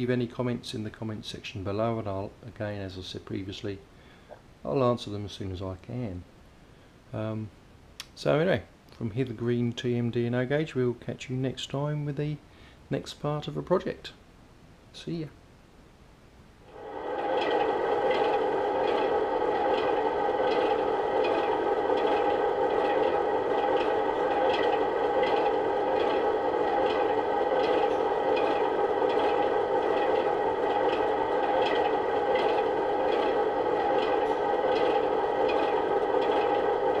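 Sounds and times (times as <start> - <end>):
machine whine: 16.7 - 37.0.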